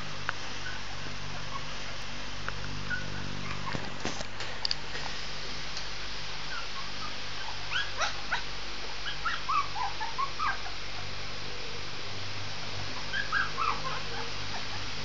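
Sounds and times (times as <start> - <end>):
steady low hum: 0.0 - 15.0
puppy yipping and whimpering: 0.6 - 1.7, 2.8 - 3.9, 6.5 - 10.8, 13.0 - 14.9.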